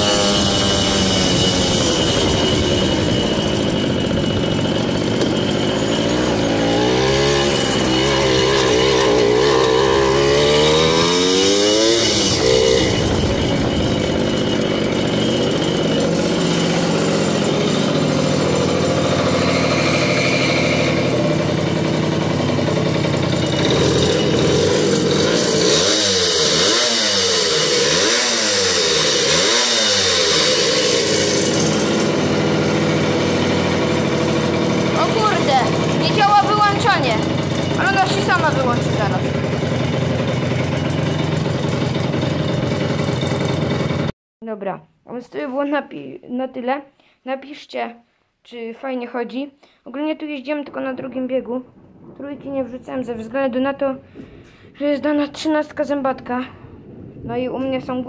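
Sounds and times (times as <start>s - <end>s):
moped engine running: 0.0s - 44.1s.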